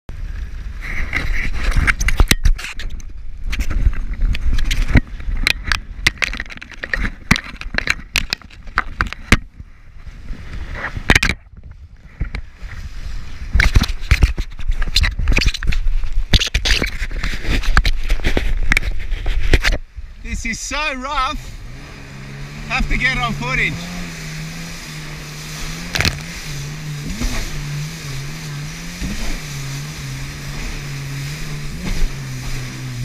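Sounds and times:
jet ski engine rumble: 0.1s - 33.0s
camera knocks and scrapes: 0.9s - 9.5s, 13.5s - 19.9s, 25.8s - 26.4s
wind and spray hissing: 21.4s - 33.0s.

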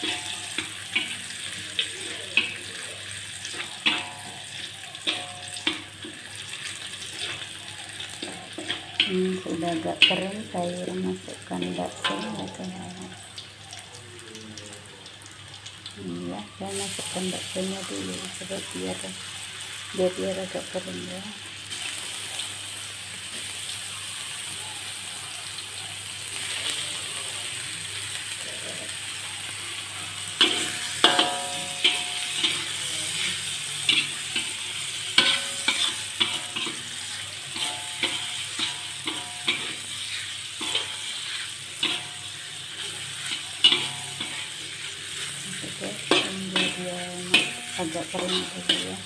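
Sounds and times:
metal spatula scraping a wok: 0.0s - 10.2s, 30.1s - 49.0s
meatballs sizzling in oil: 0.0s - 49.0s.

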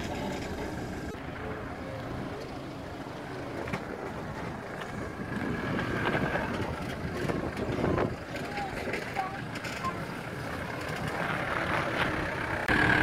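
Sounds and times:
suv engine running: 0.0s - 13.0s.

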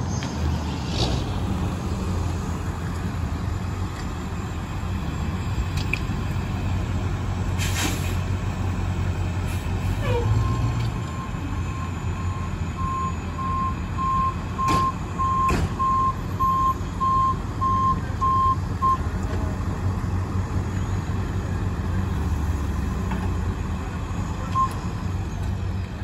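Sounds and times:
engine running low: 0.0s - 26.0s
backup alarm beeping: 10.4s - 19.0s.

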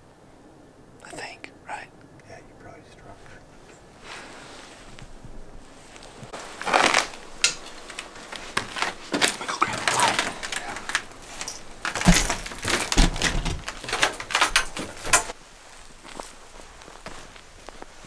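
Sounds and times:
footsteps: 3.0s - 18.0s
gear clicking and rustling: 4.7s - 18.0s
door opening: 6.7s - 15.4s.

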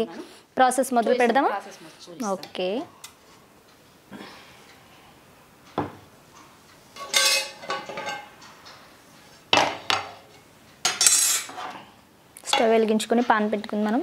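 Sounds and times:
metal cookware clattering: 6.9s - 8.8s, 9.5s - 11.8s, 12.5s - 13.5s.

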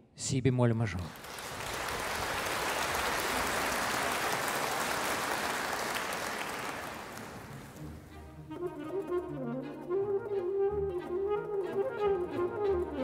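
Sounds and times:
audience applauding: 1.0s - 8.1s.

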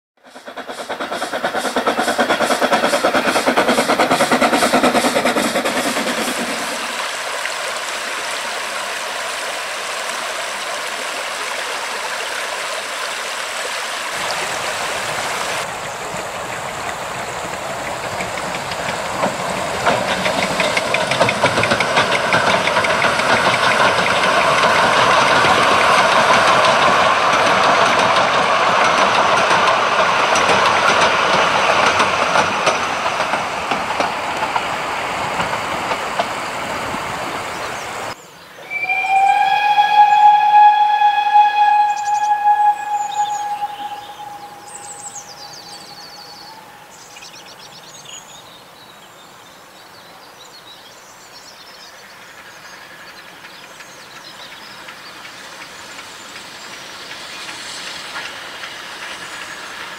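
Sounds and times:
steam locomotive exhaust beats: 0.2s - 7.3s, 14.2s - 37.4s, 38.6s - 48.0s, 52.8s - 59.9s
river water rushing: 5.7s - 28.0s.

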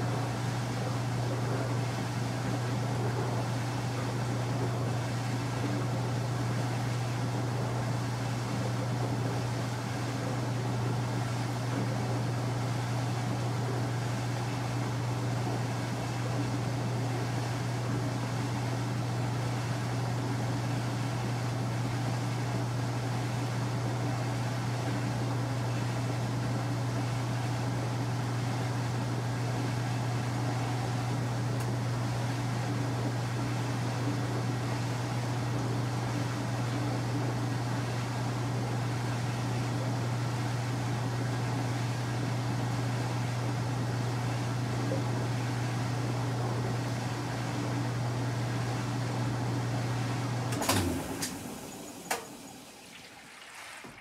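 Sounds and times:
washing machine motor humming: 0.0s - 54.0s
machine shutting off with clunk: 50.4s - 53.1s.

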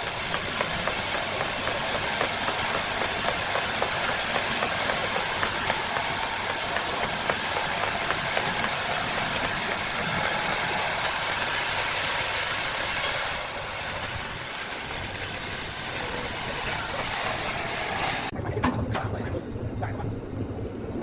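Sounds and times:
sharp knocks: 0.0s - 10.1s
machine motor running loudly: 0.0s - 13.6s
low hum: 0.0s - 21.0s.

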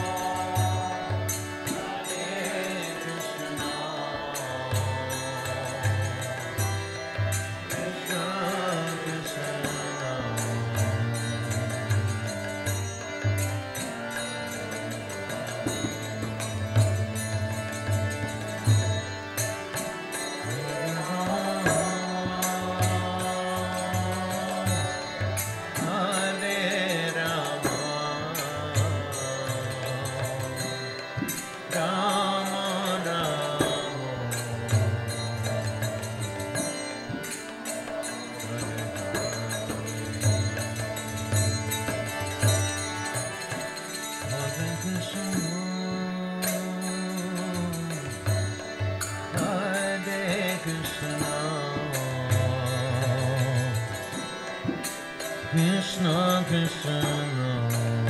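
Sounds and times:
chanted singing: 0.0s - 58.0s.

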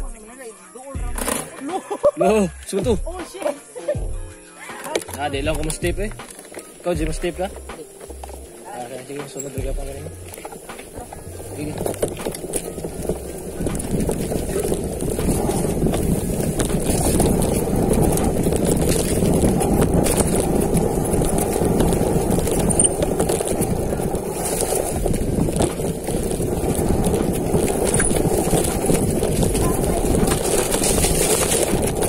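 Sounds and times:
bike rattling over dirt trail: 0.9s - 3.9s, 4.7s - 32.0s
wind rushing over microphone: 9.6s - 32.0s.

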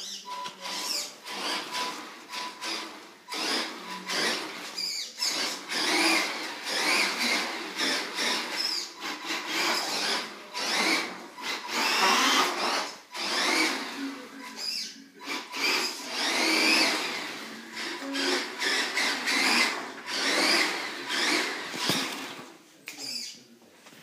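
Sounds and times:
toy truck motor whining: 0.0s - 22.4s.

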